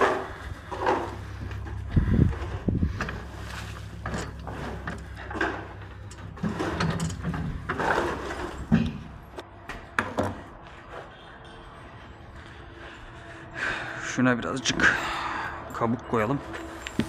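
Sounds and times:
scraping and rustling of hand tools: 0.0s - 9.4s.

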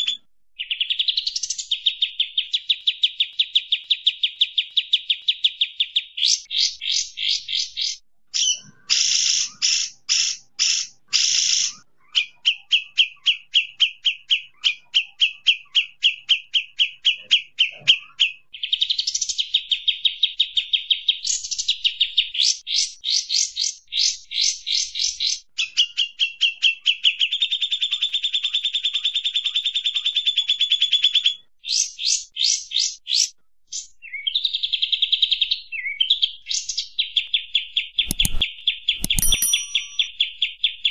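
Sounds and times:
birds singing and chattering: 0.0s - 40.9s
sharp clicks: 38.0s - 40.1s.

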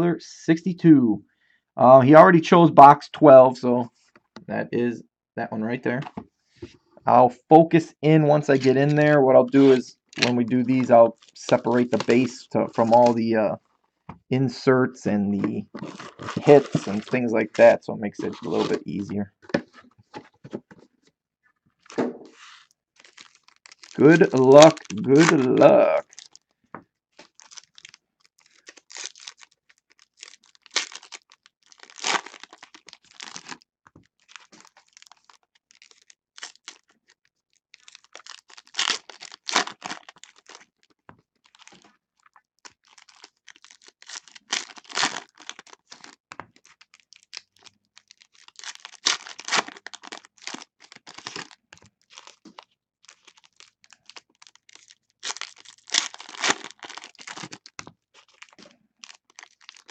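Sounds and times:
foil wrappers tearing and crinkling: 9.5s - 13.2s, 15.4s - 17.3s, 18.2s - 19.1s, 21.8s - 26.4s, 27.2s - 42.0s, 42.6s - 59.9s.

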